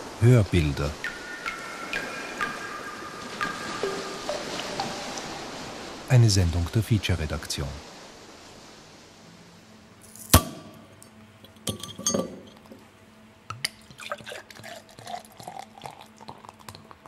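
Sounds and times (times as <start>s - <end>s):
liquid dripping and trickling: 0.7s - 6.1s, 13.6s - 17.0s
glass clinks and knocks: 11.5s - 12.8s.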